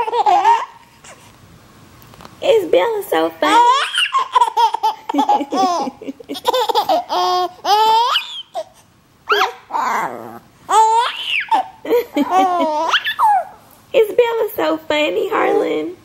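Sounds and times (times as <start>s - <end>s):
baby laughing: 0.0s - 1.2s, 3.5s - 13.6s.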